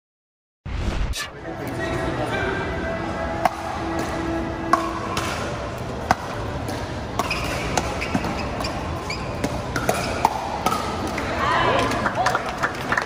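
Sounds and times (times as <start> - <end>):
background hubbub: 1.2 - 13.0.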